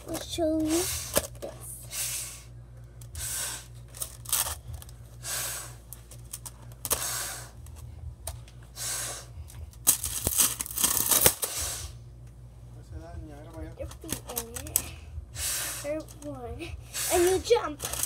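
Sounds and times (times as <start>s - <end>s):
plastic spring toy coils clattering: 13.8s - 14.9s, 17.1s - 18.0s.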